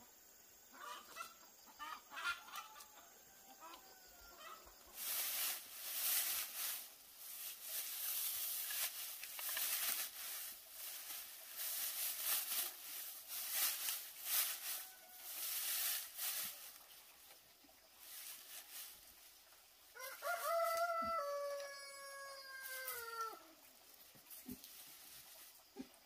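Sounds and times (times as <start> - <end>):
irregular rustling and scraping: 4.9 - 17.4, 24.1 - 26.0.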